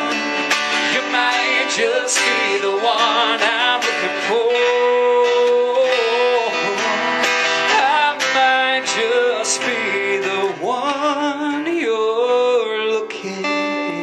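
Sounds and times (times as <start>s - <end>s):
acoustic guitar: 0.0s - 14.0s
man singing long notes: 0.0s - 14.0s.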